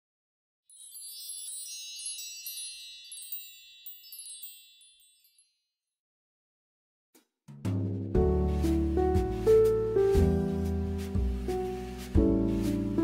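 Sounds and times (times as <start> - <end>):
high tinkling chimes: 0.7 - 5.8.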